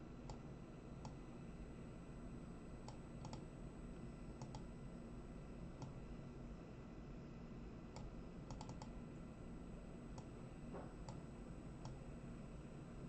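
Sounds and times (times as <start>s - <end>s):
low room hum: 0.0s - 13.0s
computer mouse clicks: 0.3s - 1.2s, 2.8s - 3.5s, 4.4s - 4.7s, 5.8s - 6.0s, 7.9s - 9.0s, 10.2s - 10.4s, 11.0s - 12.0s.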